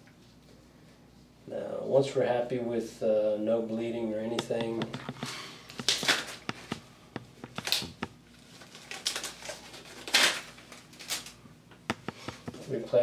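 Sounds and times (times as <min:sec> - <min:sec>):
surgical gloves rustling: 0:04.3 - 0:12.9.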